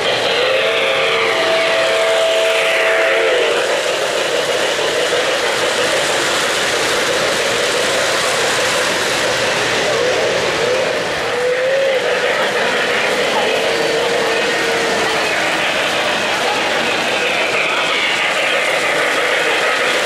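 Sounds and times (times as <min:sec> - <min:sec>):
model train wheels rumbling: 0:00.0 - 0:20.0.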